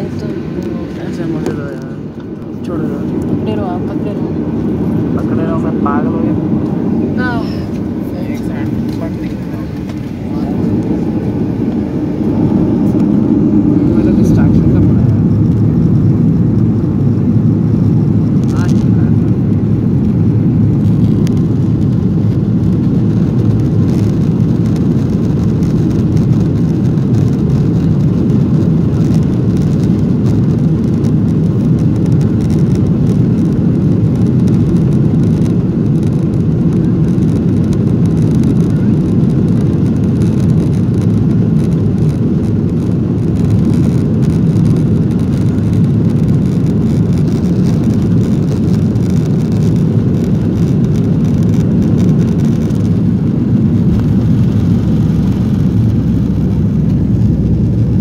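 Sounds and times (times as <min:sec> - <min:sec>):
jet cabin rumble while taxiing: 0:00.0 - 0:58.0.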